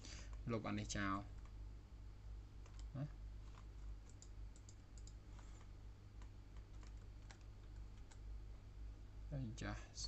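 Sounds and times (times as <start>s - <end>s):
low steady hum: 0.0s - 10.0s
keyboard typing: 2.6s - 8.2s
computer mouse clicks: 3.5s - 8.2s.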